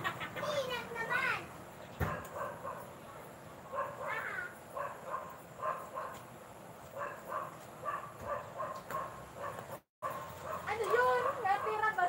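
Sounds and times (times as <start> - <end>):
dog yapping: 2.0 - 2.9, 3.7 - 6.2, 7.0 - 11.9.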